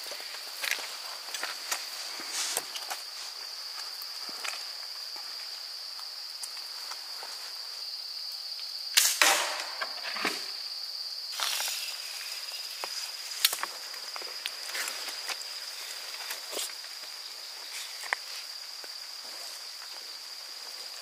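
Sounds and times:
slingshot rifle firing snap: 9.0 - 9.9.

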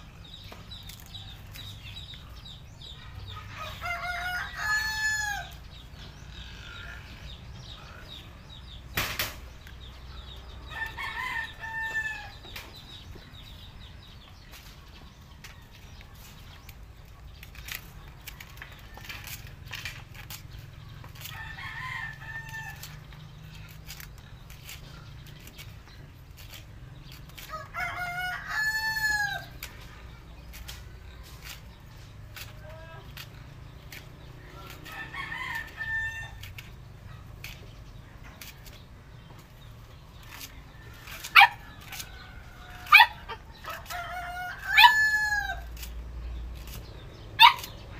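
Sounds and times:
rooster crowing: 3.6 - 5.5, 43.7 - 45.6.

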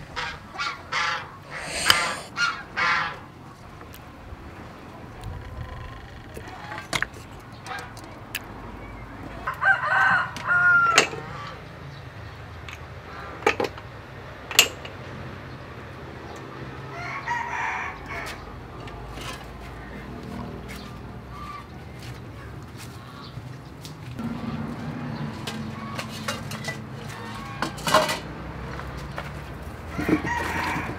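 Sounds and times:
chicken calls: 0.2 - 3.1
rooster crowing: 1.5 - 2.3, 9.5 - 11.0, 16.9 - 18.4, 29.9 - 30.9.

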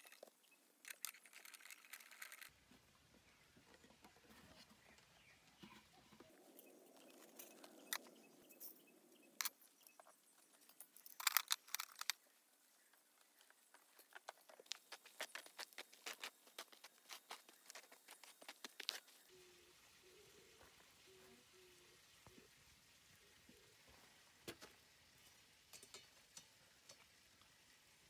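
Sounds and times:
metal parts clinking and rattling: 0.0 - 2.5, 10.6 - 12.2
footsteps on pine needles and gravel: 14.1 - 19.3.

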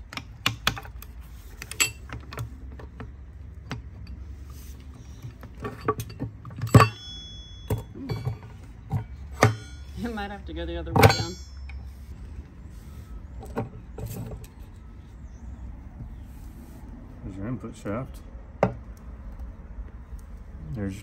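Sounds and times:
metal gears clinking and knocking: 1.6 - 2.4, 5.3 - 9.9, 11.0 - 11.8
metallic ring: 1.7 - 2.1, 5.6 - 10.4, 11.0 - 12.2.

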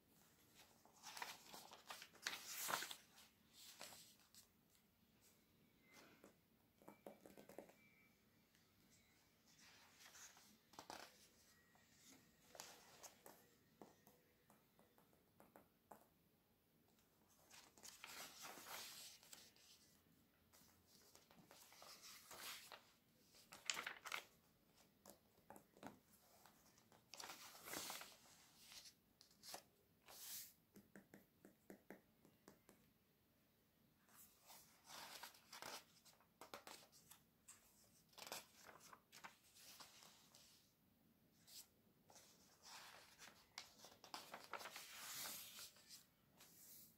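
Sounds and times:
page turns rustling: 0.6 - 4.5, 17.3 - 19.9, 20.5 - 25.2, 25.8 - 30.5, 34.4 - 40.6, 41.5 - 46.9
fingertips tapping paper pages: 23.5 - 24.3.

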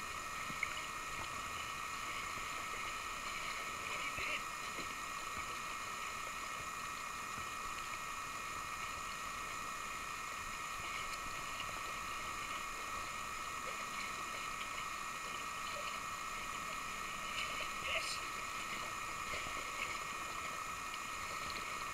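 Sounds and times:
sea water sloshing and lapping: 0.0 - 9.0, 10.5 - 21.9
steady high-pitched whine: 0.0 - 21.9.

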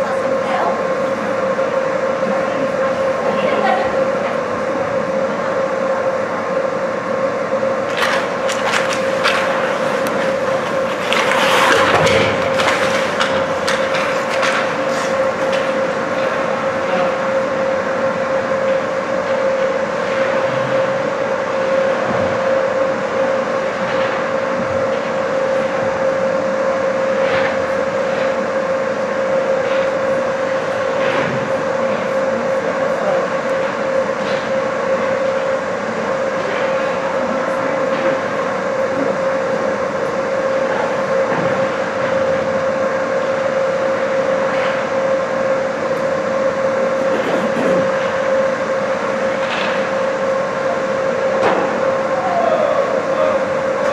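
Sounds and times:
machinery hum: 0.0 - 53.9
hockey sticks and puck clacking: 7.9 - 16.4
skates scraping ice: 8.0 - 15.2.

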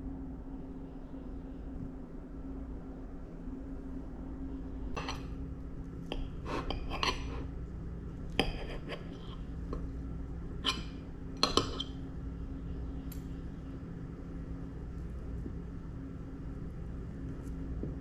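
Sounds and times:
steady low hum: 0.0 - 18.0
cutlery clinking on a plate: 10.6 - 12.0.

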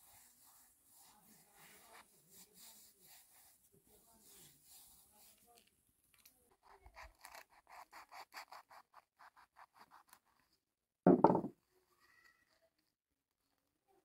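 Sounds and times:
loud thump: 11.1 - 11.5.

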